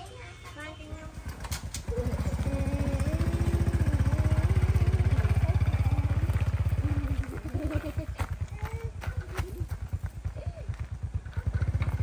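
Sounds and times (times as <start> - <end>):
small engine putter: 1.2 - 12.0.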